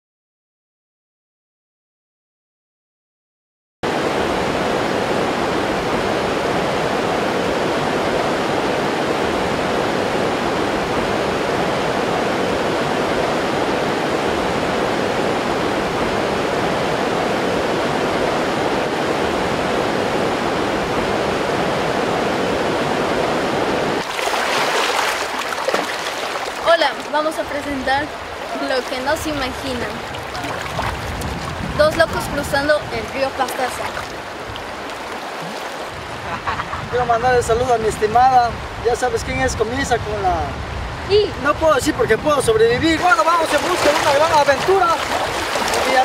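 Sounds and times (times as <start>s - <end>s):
river water rushing: 3.9s - 36.5s, 42.7s - 46.0s.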